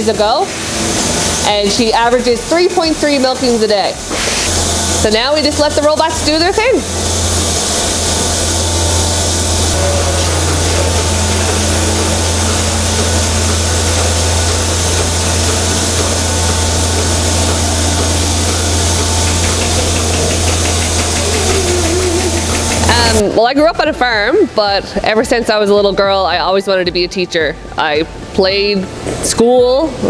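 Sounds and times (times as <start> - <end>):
milking machine hum: 0.0 - 29.3
air hissing: 0.5 - 23.2.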